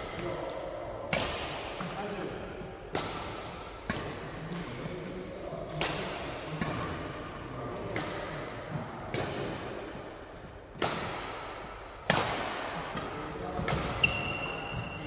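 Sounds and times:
racket hitting shuttlecock: 0:01.1 - 0:02.0, 0:02.8 - 0:04.9, 0:05.6 - 0:15.0
shoe squeaking on court floor: 0:14.0 - 0:15.0.

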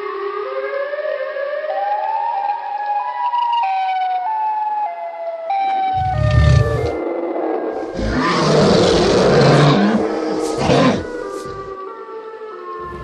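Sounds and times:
loud deep rumble: 0:06.0 - 0:07.0
siren wail: 0:06.0 - 0:07.0, 0:07.8 - 0:13.0.

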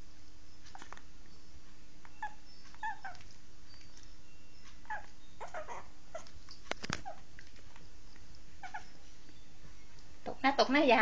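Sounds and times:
dog whimpering: 0:02.2 - 0:07.3, 0:08.1 - 0:09.4.

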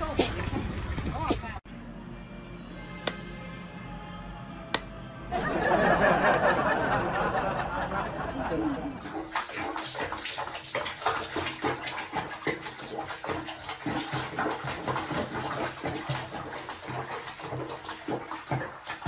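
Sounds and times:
water sloshing and splashing: 0:00.0 - 0:01.6, 0:08.3 - 0:19.0.

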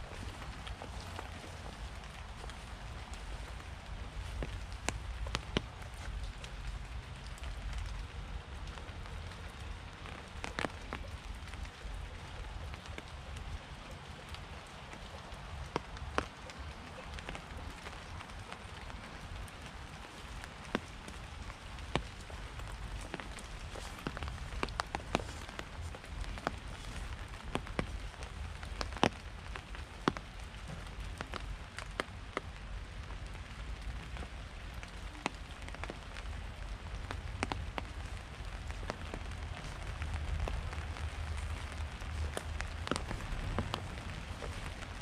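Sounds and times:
steady low rumble: 0:00.0 - 0:13.8, 0:18.0 - 0:45.0
raindrops dripping on surface: 0:00.0 - 0:45.0.

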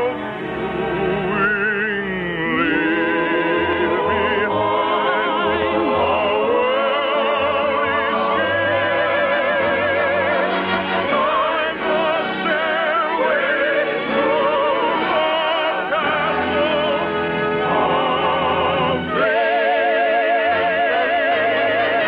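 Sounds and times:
orchestra playing: 0:00.0 - 0:22.0
person singing with wide vibrato: 0:00.0 - 0:22.0.

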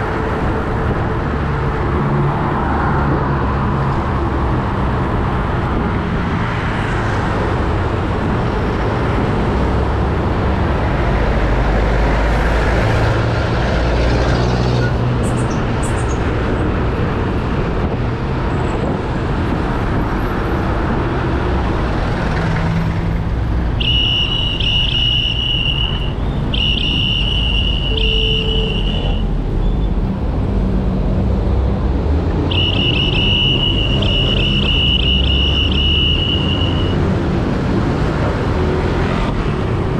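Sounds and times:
high steady squeal: 0:23.8 - 0:29.8, 0:32.5 - 0:37.0.

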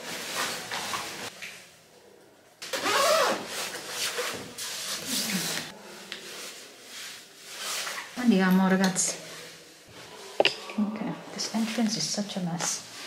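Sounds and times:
jacket zipping up: 0:02.7 - 0:03.5.

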